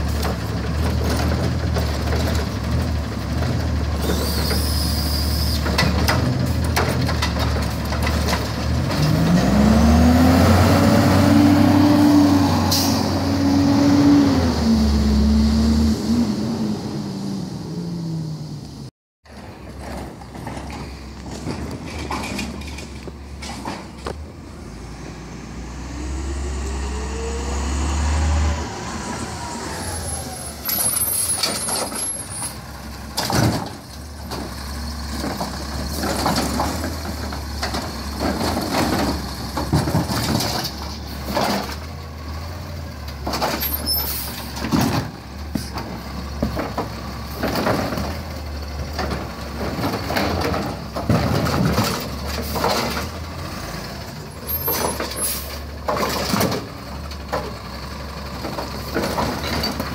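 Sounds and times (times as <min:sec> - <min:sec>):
bins banging and clattering: 0:00.0 - 0:10.0, 0:19.3 - 0:24.3, 0:30.6 - 0:42.0, 0:43.1 - 0:53.5, 0:54.3 - 0:59.9.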